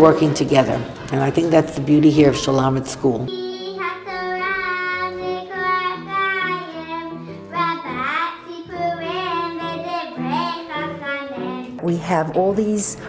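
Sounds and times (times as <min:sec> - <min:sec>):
instrumental accompaniment: 0:00.0 - 0:13.0
girls singing: 0:03.2 - 0:11.6.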